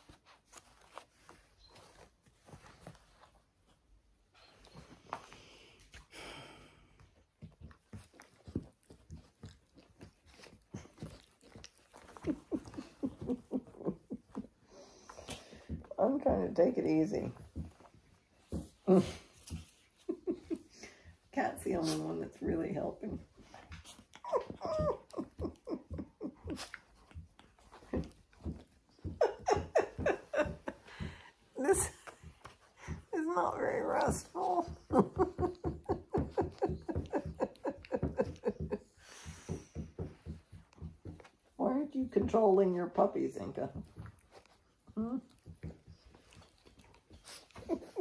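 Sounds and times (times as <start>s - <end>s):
dogs licking: 6.9s - 16.2s, 43.7s - 48.0s
small dogs yipping and whining: 23.8s - 27.0s.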